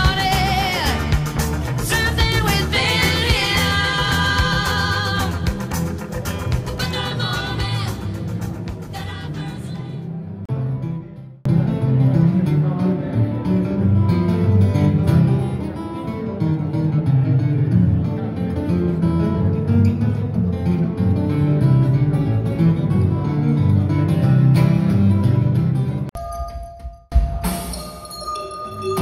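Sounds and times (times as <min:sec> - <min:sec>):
solo acoustic guitar: 0:10.5 - 0:26.1.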